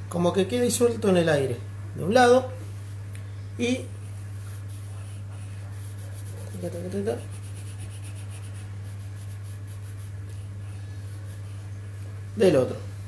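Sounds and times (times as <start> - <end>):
steady low hum: 0.0 - 13.0
pencil scratching on paper: 4.1 - 11.7.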